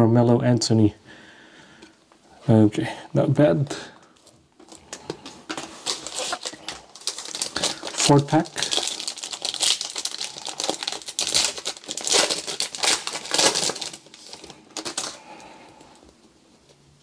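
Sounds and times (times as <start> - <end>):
wrapper crinkling and tearing: 4.2 - 15.5.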